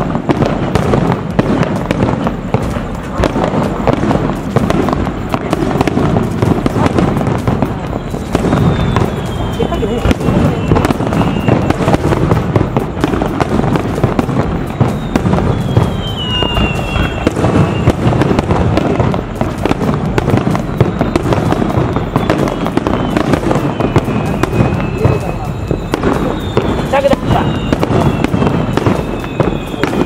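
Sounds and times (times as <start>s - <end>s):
fireworks booming and crackling: 0.0s - 30.0s
fireworks whistles: 0.0s - 30.0s.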